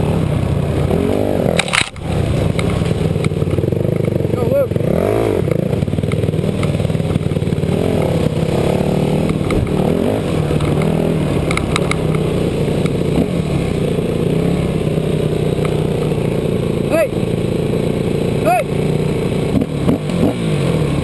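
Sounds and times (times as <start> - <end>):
dirt bike engine revving: 0.0 - 21.0
sharp clicks: 1.5 - 4.2, 10.5 - 13.0.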